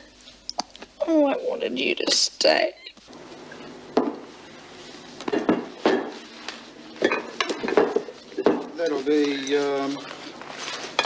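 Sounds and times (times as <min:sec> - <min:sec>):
glass bottles clinking: 0:07.0 - 0:09.9.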